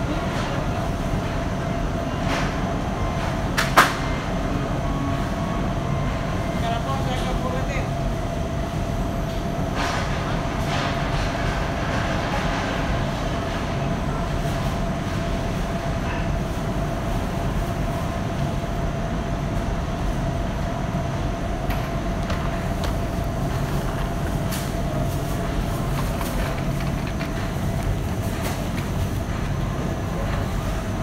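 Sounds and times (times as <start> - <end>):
mid-pitched hum: 16.9 - 31.0.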